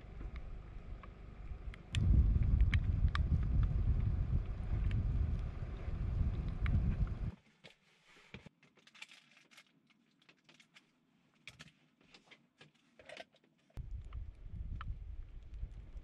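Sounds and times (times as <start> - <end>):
wind rumbling on microphone: 0.0 - 7.3, 13.8 - 16.0
plastic parts clicking and rustling: 8.4 - 13.7.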